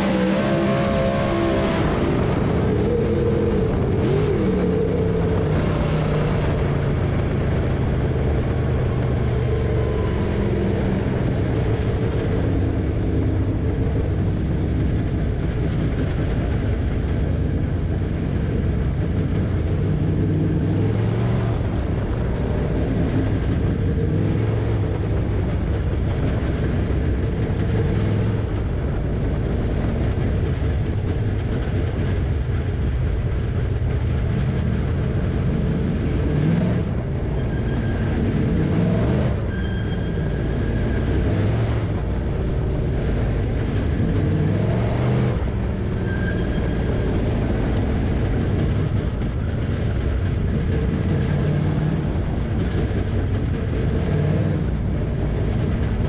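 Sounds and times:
race car engine revving: 0.0 - 16.6, 33.6 - 56.0.

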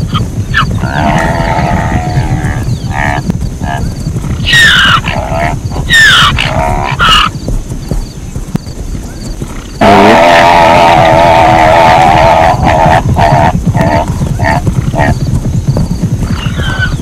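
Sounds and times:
zebra yelping: 0.0 - 7.4, 9.8 - 15.2, 16.2 - 17.0.

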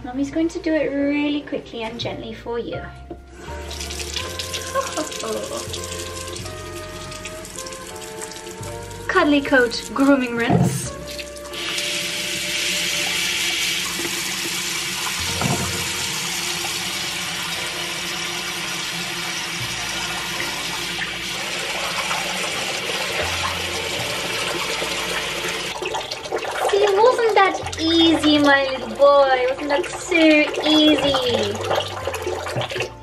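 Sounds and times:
tap running into sink: 9.4 - 33.0.

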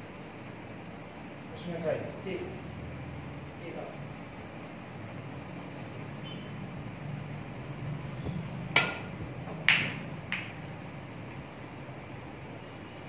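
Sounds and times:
snooker balls cracking together: 8.9 - 10.8
cue tip clicking cue ball: 9.7 - 10.6.

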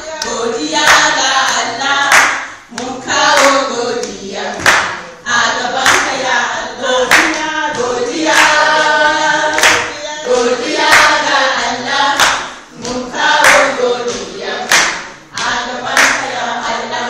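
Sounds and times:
hand claps: 0.2 - 5.0, 5.8 - 6.2, 7.1 - 8.6, 9.6 - 10.0, 10.9 - 11.2, 12.2 - 16.3.

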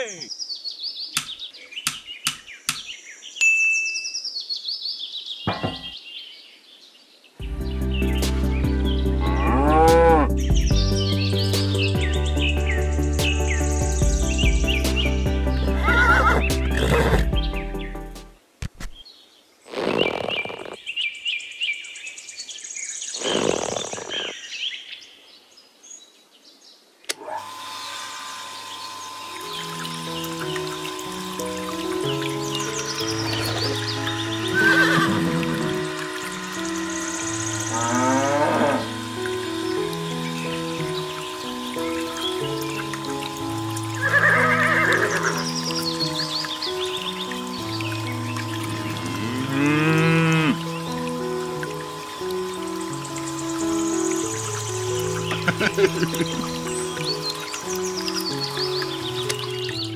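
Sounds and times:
songbird chirping in trills: 0.0 - 59.9
steady hum: 27.3 - 44.0.

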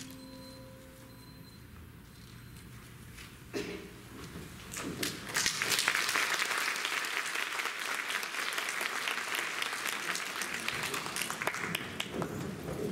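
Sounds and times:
audience applauding: 5.0 - 12.9.

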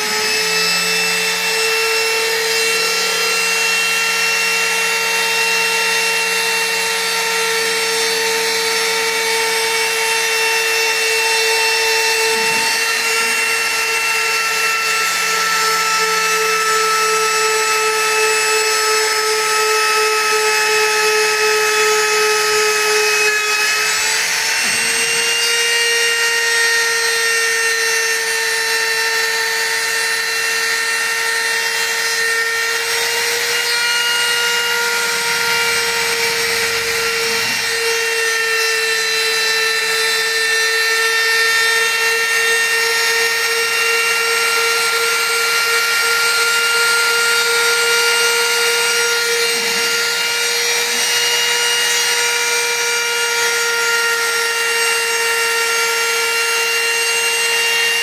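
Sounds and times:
end mill cutting wood: 0.0 - 58.0
router spindle motor whine: 0.0 - 58.0.

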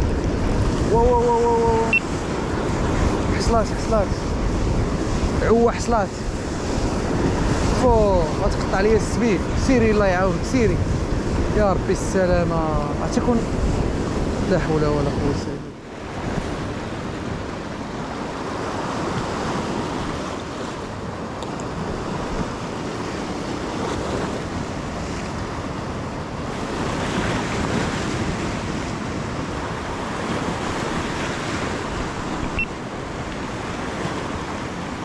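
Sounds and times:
wind on microphone: 0.0 - 35.0
waves breaking over rocks: 13.4 - 35.0.

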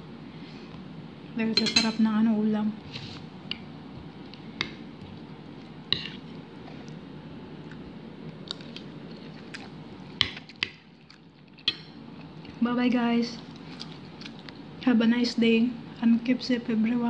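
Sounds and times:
person chewing food: 3.5 - 12.6, 13.4 - 14.7.

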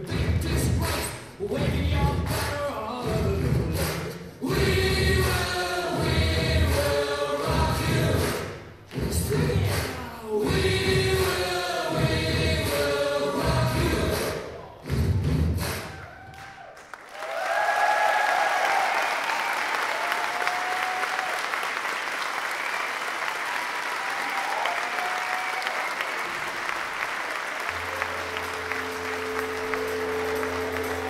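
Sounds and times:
audience applauding: 15.7 - 31.0
people cheering: 15.8 - 31.0.

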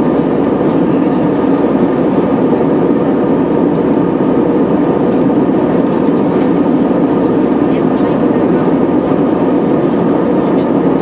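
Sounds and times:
airplane cabin engine drone: 0.0 - 11.0.

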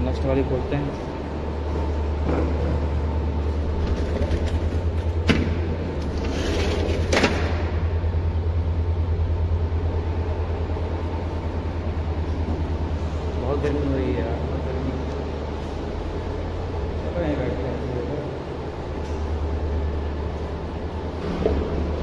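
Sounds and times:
sliding window scraping open: 6.0 - 7.4.

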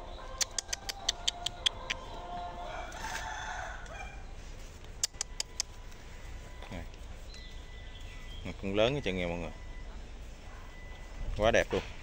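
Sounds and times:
rooster crowing: 0.1 - 4.3
sharp clicks: 0.4 - 2.0, 4.8 - 5.8.

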